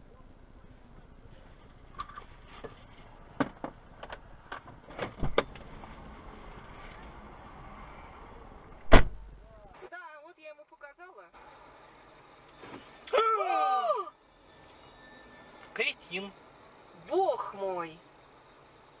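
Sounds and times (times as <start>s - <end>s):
high electronic whine: 0.0s - 9.8s
faint street ambience: 0.0s - 19.0s
loud thump: 5.0s - 5.5s, 8.8s - 9.3s.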